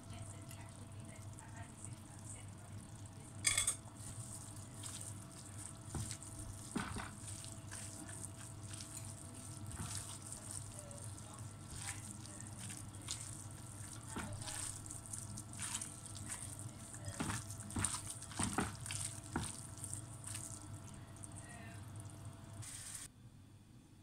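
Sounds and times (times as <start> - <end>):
wet squishing of minced meat: 0.0 - 23.1
clink against ceramic bowl: 3.4 - 3.8.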